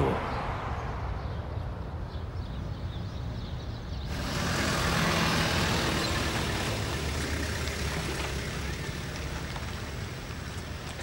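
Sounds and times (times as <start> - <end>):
truck engine running: 4.1 - 11.0.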